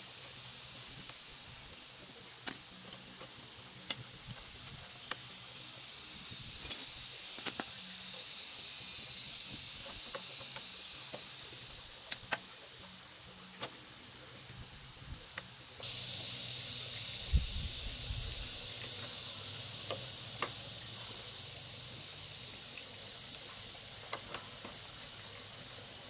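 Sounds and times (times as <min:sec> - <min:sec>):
steady high hiss: 0:00.0 - 0:26.0
hand tools clicking on engine: 0:06.6 - 0:07.8, 0:12.0 - 0:12.5, 0:19.8 - 0:20.6, 0:24.0 - 0:24.8.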